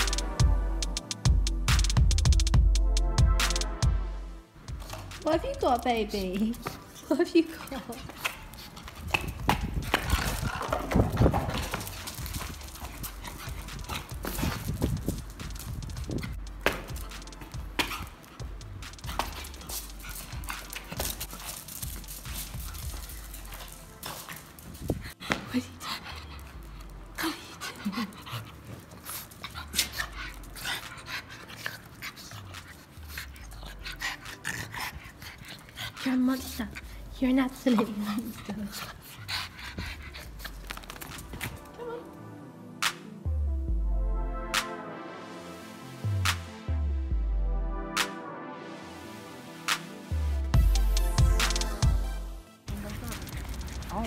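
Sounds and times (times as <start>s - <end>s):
dog claws clicking on concrete: 7.6s - 25.4s, 40.0s - 41.6s.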